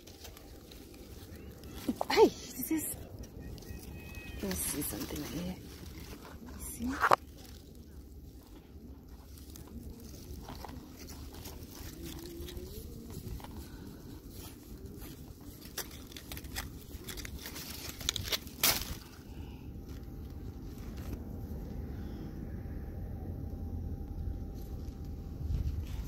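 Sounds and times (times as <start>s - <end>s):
dry leaves rustling and crackling: 0.0s - 22.2s.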